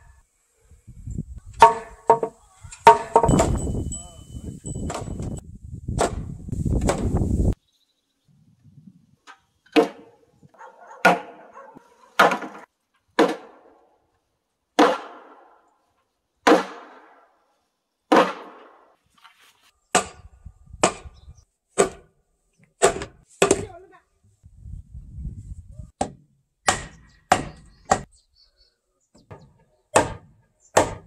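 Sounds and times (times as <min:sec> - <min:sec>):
wooden mallet striking timber: 0:01.6 - 0:03.7, 0:04.8 - 0:05.3, 0:06.0 - 0:07.1, 0:11.0 - 0:11.4, 0:12.2 - 0:13.6, 0:14.8 - 0:15.4, 0:16.4 - 0:17.0, 0:18.1 - 0:18.6, 0:19.9 - 0:20.2, 0:20.8 - 0:21.1, 0:21.8 - 0:22.1, 0:22.8 - 0:23.7, 0:26.0 - 0:28.1, 0:29.2 - 0:31.0.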